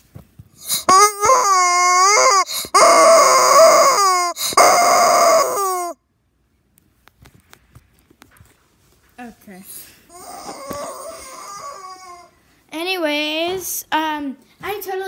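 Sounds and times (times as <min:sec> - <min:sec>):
rubber chicken squawking: 0:00.6 - 0:06.0, 0:10.1 - 0:12.3.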